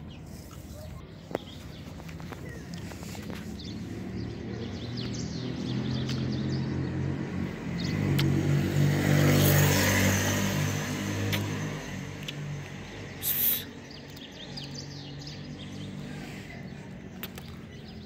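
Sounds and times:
small birds chirping: 0.0 - 18.0
car passing by: 3.0 - 13.4
burst of hissing noise: 13.2 - 13.7.

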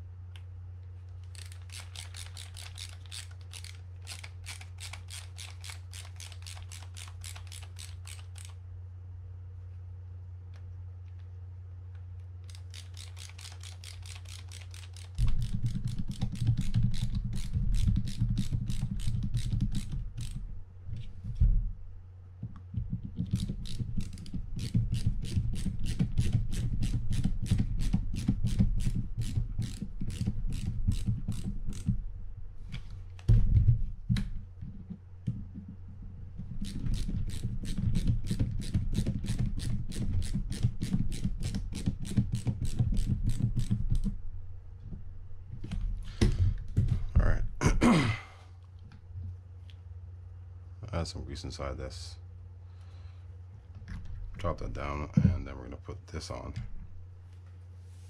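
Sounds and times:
low rumble of reel handling: 0.0 - 8.6, 10.4 - 47.5
ratcheting screwdriver clicking: 1.2 - 8.6, 12.4 - 20.4, 23.2 - 31.9.

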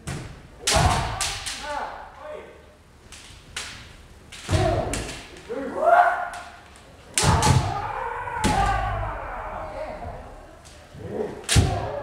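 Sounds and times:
people shouting: 0.6 - 2.1, 4.5 - 6.6, 7.2 - 12.0
bamboo swords striking armour: 7.2 - 7.8, 11.5 - 12.0.

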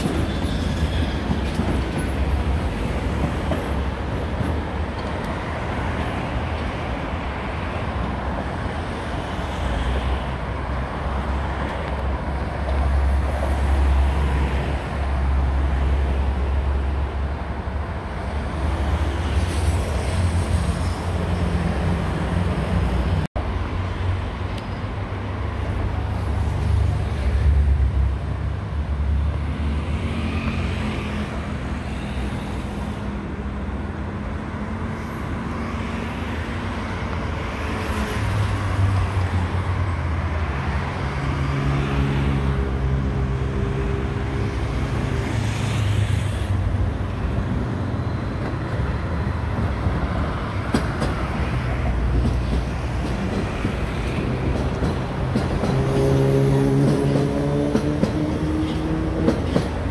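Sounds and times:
cars passing on busy street: 0.0 - 59.9
electric train running past: 33.8 - 59.9.

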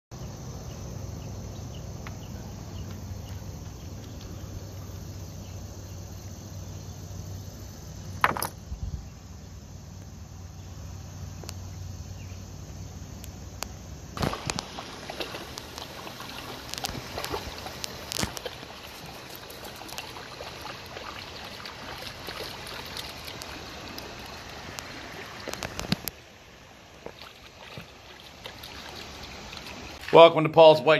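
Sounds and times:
insects chirping: 0.1 - 30.9
dog splashing through water: 14.2 - 26.0, 27.0 - 30.2.

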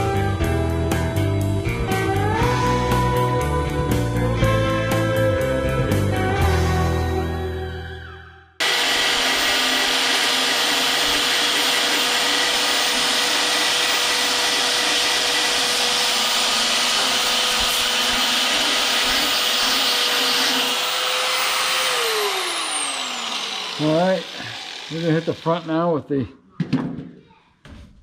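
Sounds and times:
belt sander grinding metal: 8.6 - 25.9
motor whine: 20.2 - 25.7.

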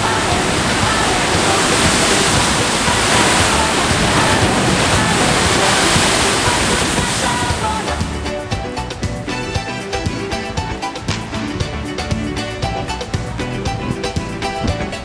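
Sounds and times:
waves breaking against cliffs: 0.0 - 8.5.

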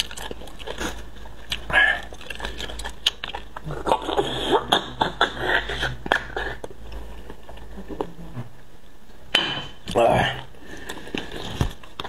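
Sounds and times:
chewing with mouth clicks: 0.0 - 5.2.

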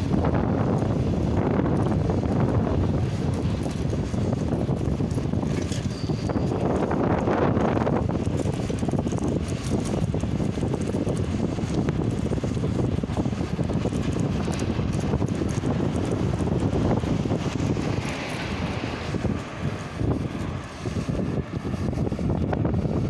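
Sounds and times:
electric train rumble: 0.0 - 23.0
wind on microphone: 0.0 - 23.0.

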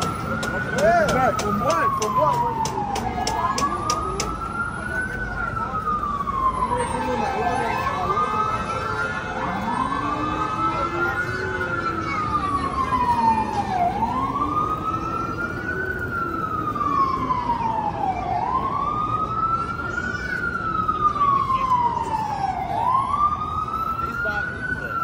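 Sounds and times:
city traffic noise: 0.0 - 25.0
emergency vehicle siren wailing: 0.0 - 25.0.

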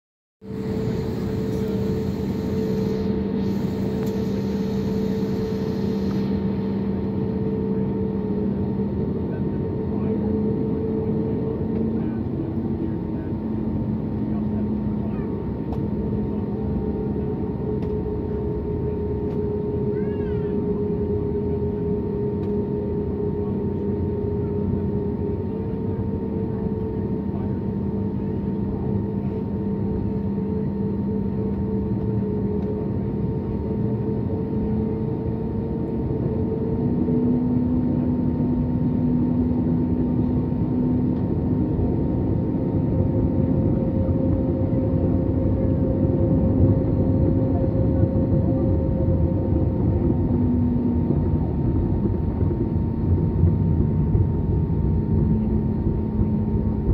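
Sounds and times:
jet engines humming from cabin: 0.4 - 56.9.

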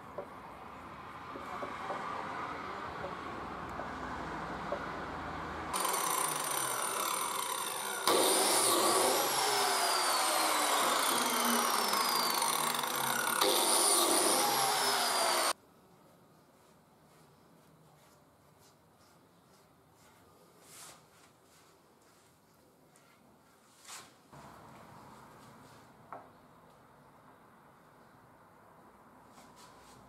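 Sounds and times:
biscuit joiner motor whine: 5.7 - 15.6.

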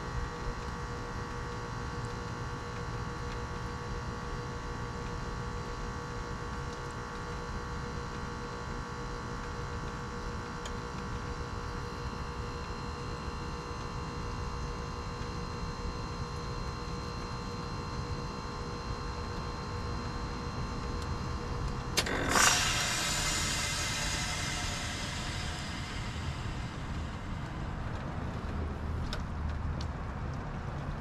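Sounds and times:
heat pump humming: 20.2 - 29.0.

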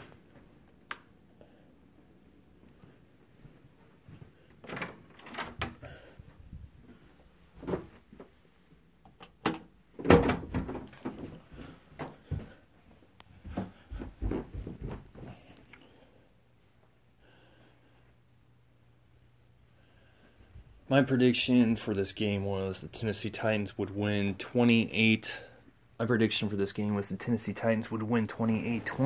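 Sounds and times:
door clicks and thumps: 4.6 - 5.8, 9.3 - 11.2.

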